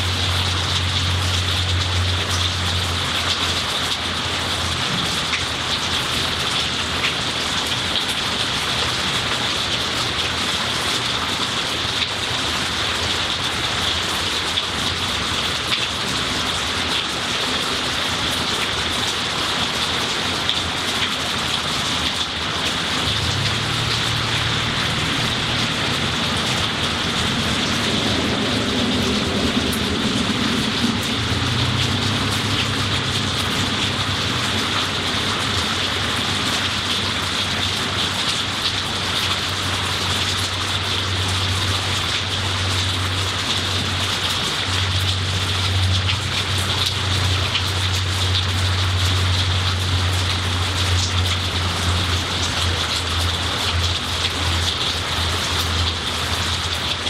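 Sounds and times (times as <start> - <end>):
heavy rain on leaves: 0.0 - 57.0
low steady rumble: 23.0 - 35.7.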